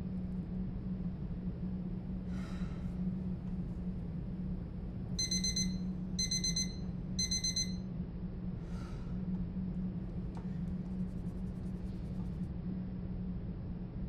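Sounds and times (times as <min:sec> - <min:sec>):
steady low hum: 0:00.0 - 0:14.0
electronic alarm beeps: 0:05.2 - 0:07.9.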